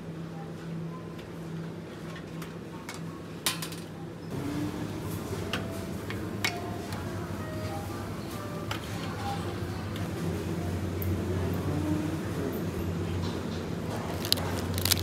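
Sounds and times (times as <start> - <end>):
wire shopping cart rattling: 14.0 - 15.0.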